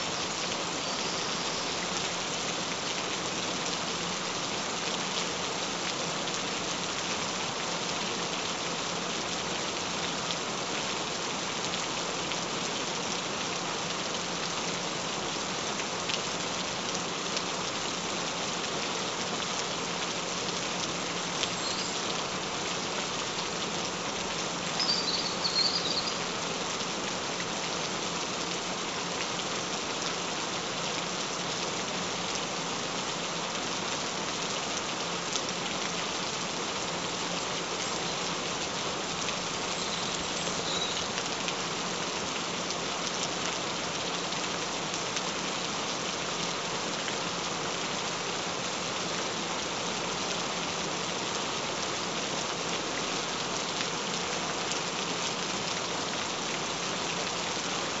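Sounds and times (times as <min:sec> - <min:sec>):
steady rain falling: 0:00.0 - 0:58.0
high chirping: 0:24.8 - 0:26.2.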